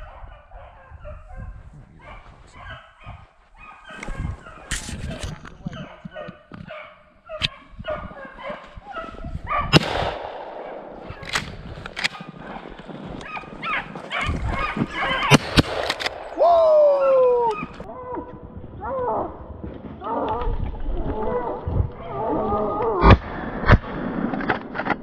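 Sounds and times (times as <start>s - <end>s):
sharp cracks: 9.7s - 17.8s
dogs baying: 12.1s - 15.3s
dog howling: 16.4s - 19.3s.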